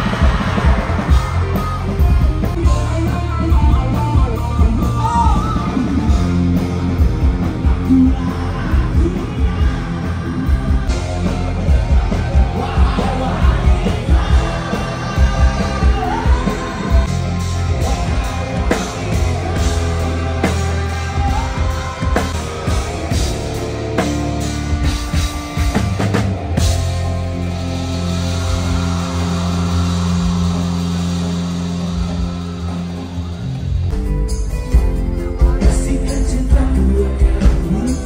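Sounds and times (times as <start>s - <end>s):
live rock band: 0.0s - 38.0s
person singing: 7.6s - 23.2s, 35.0s - 38.0s.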